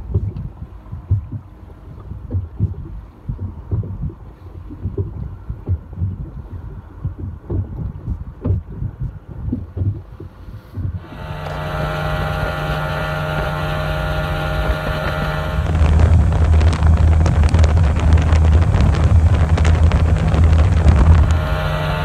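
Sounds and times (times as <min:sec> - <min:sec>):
low uneven thumps: 0:00.0 - 0:22.0
wind and water rushing: 0:00.0 - 0:22.0
outboard motor running: 0:09.6 - 0:22.0.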